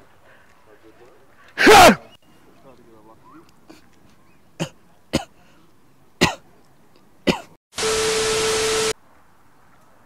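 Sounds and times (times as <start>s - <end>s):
static hiss with steady tone: 7.8s - 10.0s.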